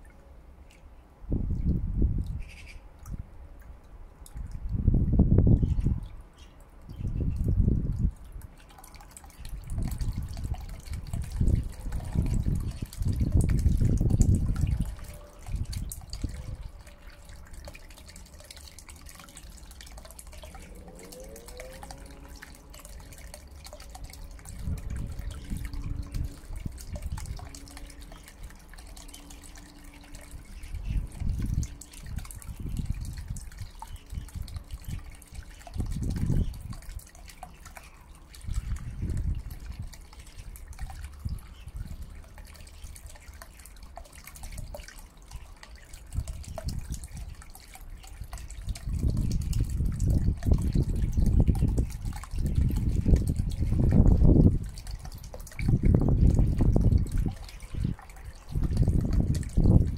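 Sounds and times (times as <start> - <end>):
water splashing and trickling: 0.0 - 59.9
low rumbles: 20.0 - 28.6.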